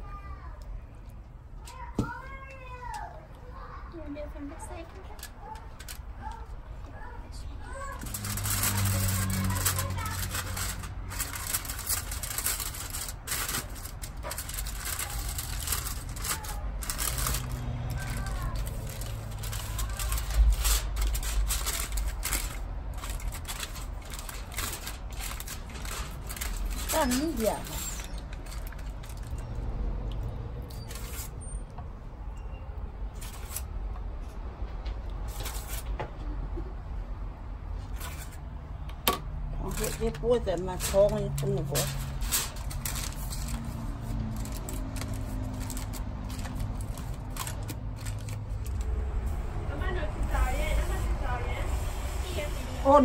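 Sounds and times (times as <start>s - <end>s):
aluminium foil crinkling: 4.1s - 6.6s, 7.3s - 29.7s, 30.7s - 31.4s, 33.2s - 33.7s, 35.3s - 35.9s, 37.8s - 38.5s, 39.4s - 49.2s.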